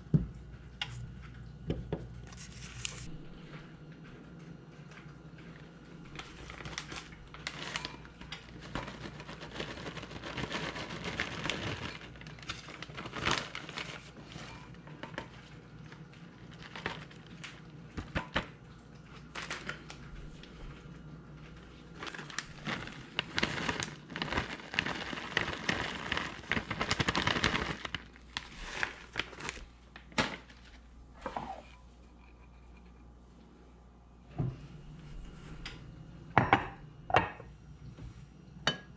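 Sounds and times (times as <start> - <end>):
plastic bag crinkling: 6.0 - 18.2, 19.0 - 31.7.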